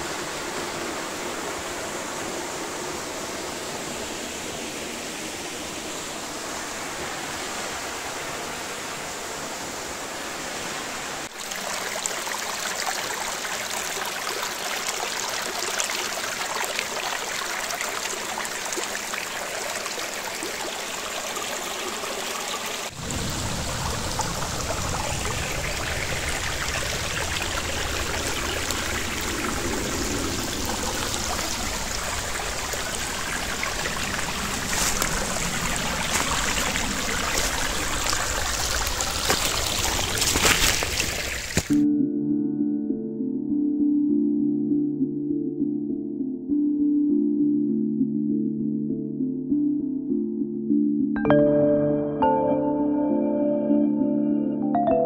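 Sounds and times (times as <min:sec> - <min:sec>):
stream rippling over stones: 0:05.6 - 0:41.8
waterfall splashing into pool: 0:11.3 - 0:41.8
deep water rumble: 0:22.9 - 0:41.8.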